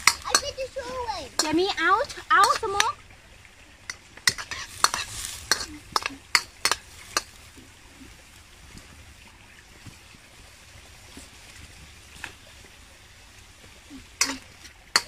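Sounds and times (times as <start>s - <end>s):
utensil clinking against pan: 0.0s - 0.6s, 4.2s - 7.3s.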